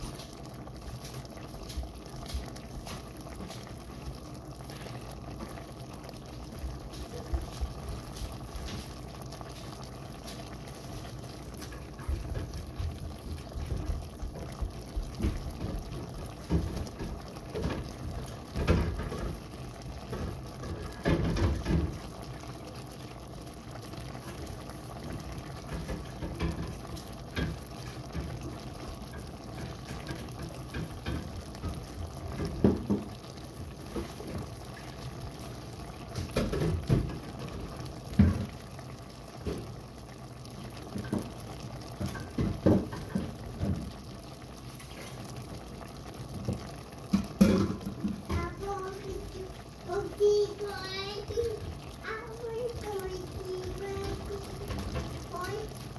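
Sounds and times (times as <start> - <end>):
sauce bubbling in pan: 0.0 - 55.9.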